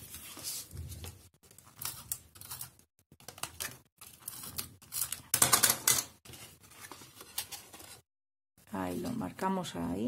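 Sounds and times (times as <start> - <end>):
paper rustling: 0.0 - 2.7, 6.2 - 8.0.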